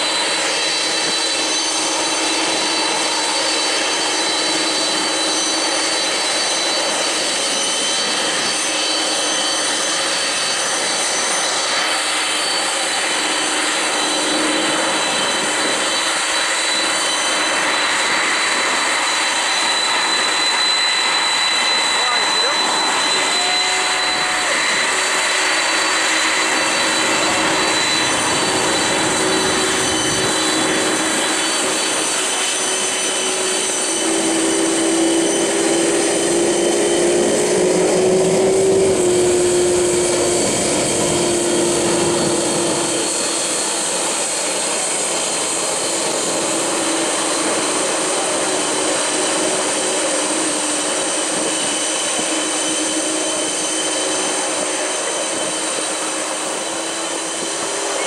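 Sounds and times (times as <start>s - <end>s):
jet engines roaring with whine: 0.0s - 58.0s
humming tone: 12.9s - 44.3s.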